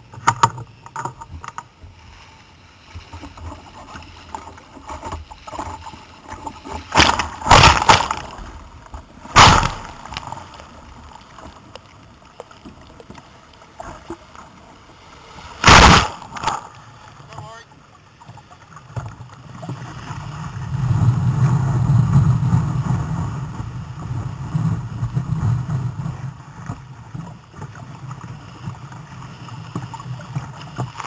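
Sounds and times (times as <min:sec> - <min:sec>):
low wash of sea: 0:00.0 - 0:31.0
loud crashes of water: 0:06.9 - 0:08.6, 0:09.2 - 0:10.5, 0:15.3 - 0:16.7.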